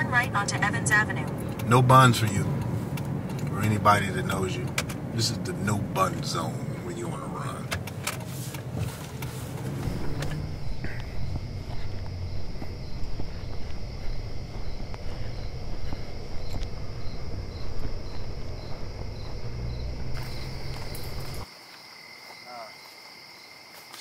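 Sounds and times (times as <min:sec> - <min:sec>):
low rumble: 0:09.5 - 0:21.4
insects trilling: 0:09.7 - 0:24.0
high pulsing chirp: 0:09.8 - 0:21.4.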